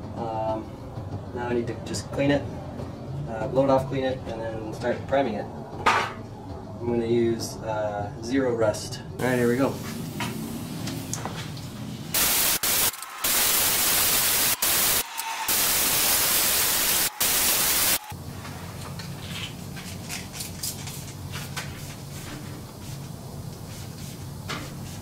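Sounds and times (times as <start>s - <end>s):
compressed air blow gun hissing: 12.2s - 18.1s.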